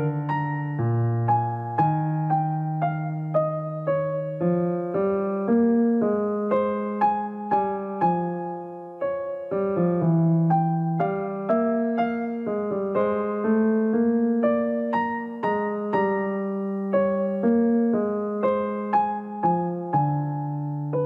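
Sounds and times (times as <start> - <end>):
gentle piano music: 0.0 - 21.0.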